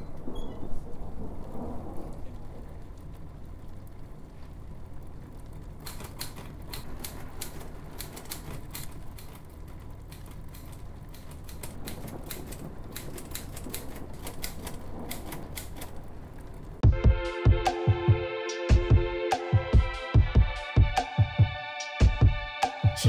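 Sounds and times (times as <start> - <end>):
typewriter keystroke clacks: 5.8 - 9.5, 10.1 - 16.0.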